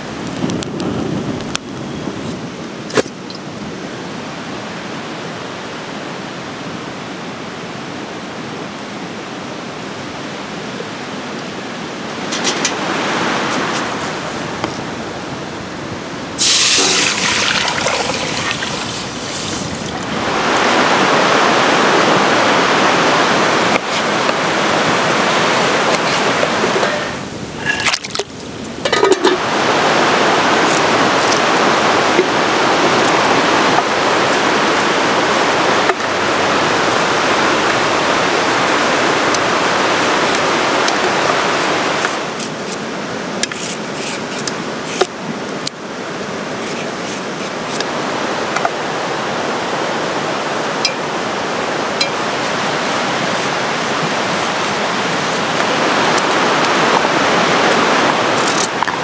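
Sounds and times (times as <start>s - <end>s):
rushing mountain river: 0.0s - 59.0s
knife peeling carrot: 41.6s - 42.8s, 43.4s - 45.1s, 46.6s - 47.9s, 51.8s - 56.4s.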